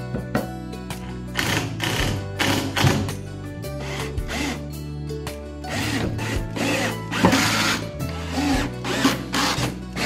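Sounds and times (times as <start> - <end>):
background music: 0.0 - 10.0
cordless drill driving screws: 5.7 - 10.0.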